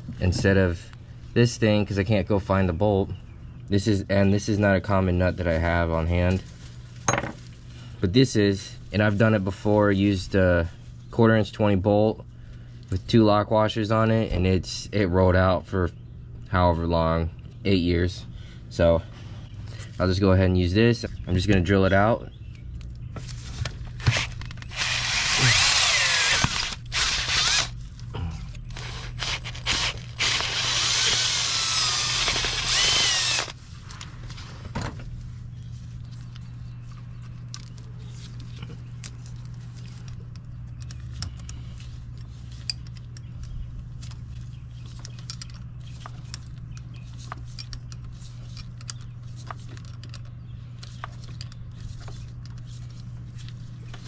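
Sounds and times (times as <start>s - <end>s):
low steady hum: 0.0s - 54.0s
power drill drilling: 24.1s - 27.7s, 28.7s - 33.6s.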